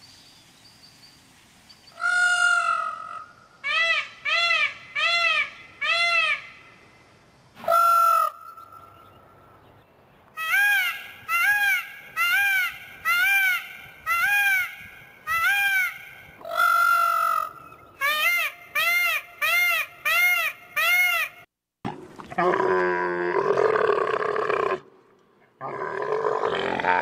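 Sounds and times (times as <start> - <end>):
peacock calling: 1.9 - 6.7, 7.6 - 9.2, 10.3 - 21.5.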